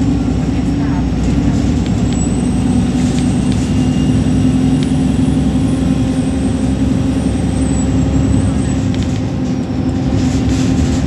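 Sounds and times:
bus engine hum: 0.0 - 11.0
high-pitched whine: 2.0 - 8.9.

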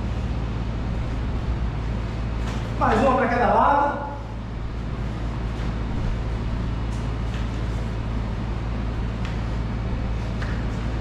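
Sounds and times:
low background rumble: 0.0 - 11.0
faint foot taps and scuffs: 2.4 - 3.0, 6.9 - 7.9, 10.2 - 11.0.

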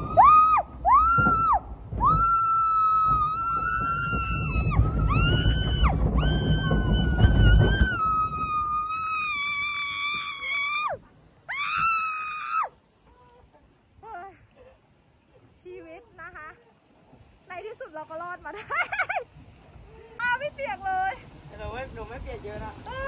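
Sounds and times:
woman screaming: 0.0 - 12.8
low rumble of moving ride: 0.0 - 23.0.

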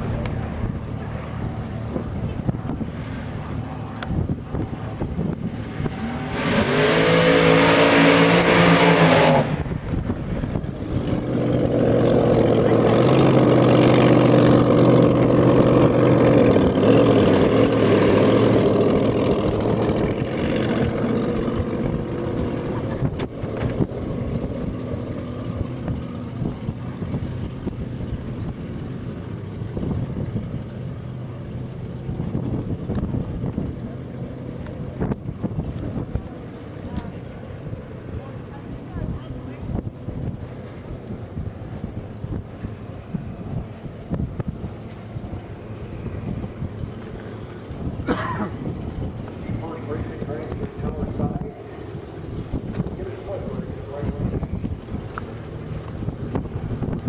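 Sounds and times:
dragster engine revving: 0.0 - 57.0.

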